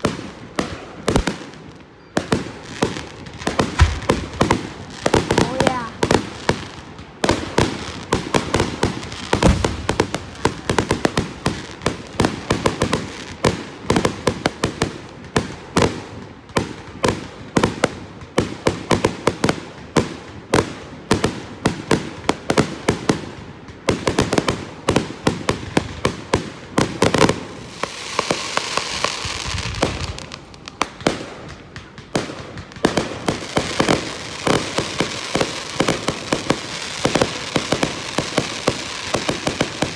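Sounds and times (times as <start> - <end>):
fireworks bangs: 0.0 - 39.9
fireworks hiss: 2.5 - 13.6, 27.0 - 39.9.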